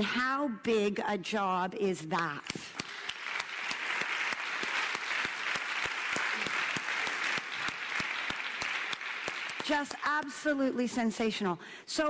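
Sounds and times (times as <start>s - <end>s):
audience applauding: 2.7s - 10.2s.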